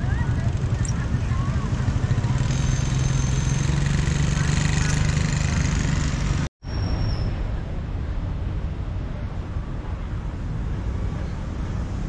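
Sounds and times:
motorbike engine running: 0.0s - 6.5s
road noise: 0.0s - 12.0s.

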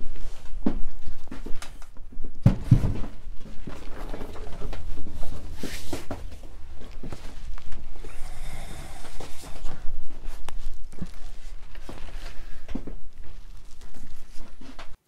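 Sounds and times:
foam sheet rustling: 9.3s - 15.0s.

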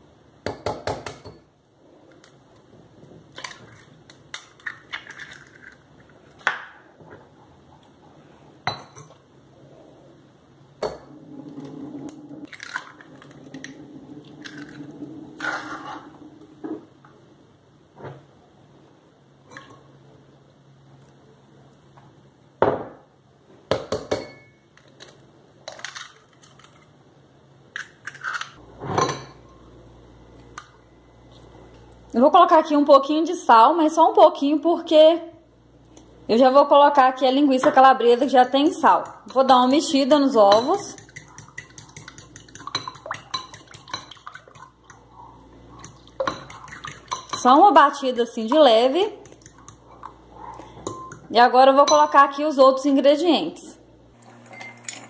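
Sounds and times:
eggs cracking against bowl: 40.6s - 45.1s, 45.7s - 47.5s, 49.2s - 51.3s
bowls clinking: 45.7s - 47.6s, 54.2s - 55.0s.

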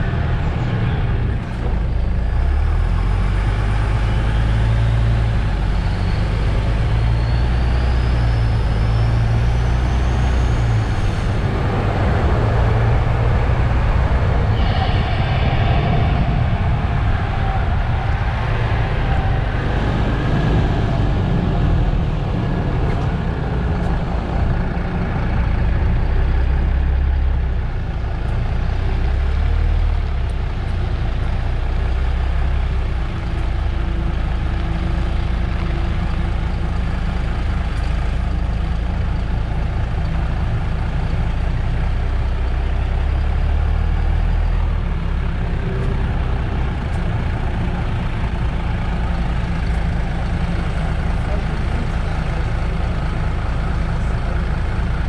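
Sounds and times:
bus diesel engine rumbling: 0.0s - 55.0s.

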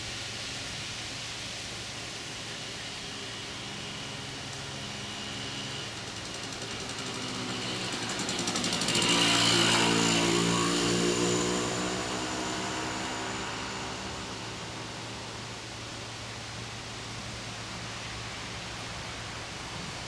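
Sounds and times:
vehicle engine passing by: 5.1s - 17.1s.

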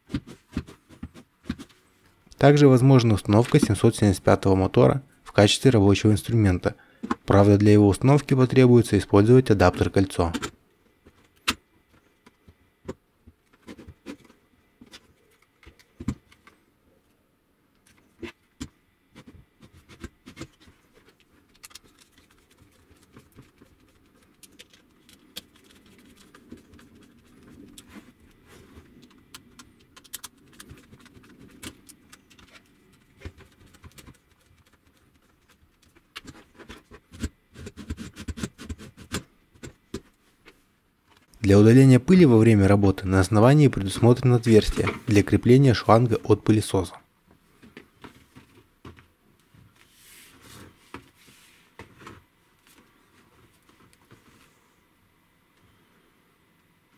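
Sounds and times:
hands handling plastic parts: 0.0s - 4.0s, 17.7s - 41.4s.

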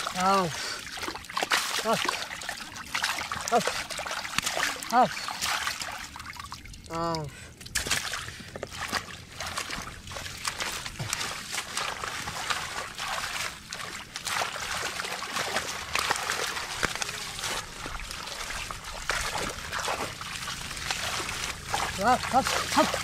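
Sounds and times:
splashing in muddy water: 0.0s - 23.0s.

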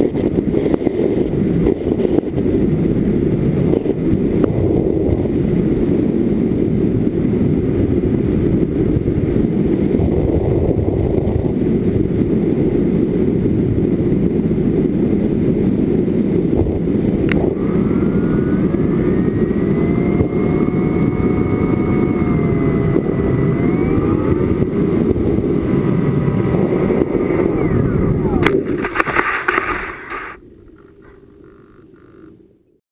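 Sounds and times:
wind buffeting microphone: 0.0s - 32.5s
electric motor and propeller whine: 0.0s - 32.8s.

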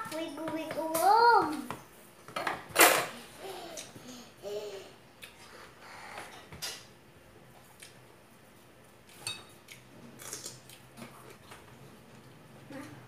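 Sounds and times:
cutlery clinking against dishes: 9.1s - 9.6s.

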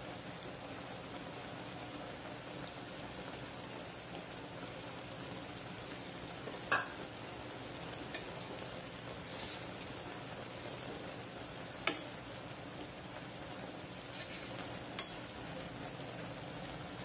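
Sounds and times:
food sizzling in a pan: 0.0s - 17.0s
sharp crackle: 14.0s - 15.4s.

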